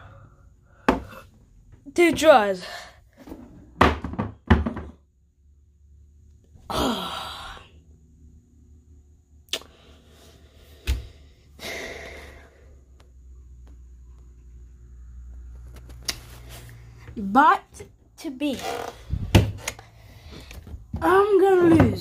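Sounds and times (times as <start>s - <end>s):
person sighing: 6.7s - 7.7s
breathy exhale: 9.6s - 12.8s.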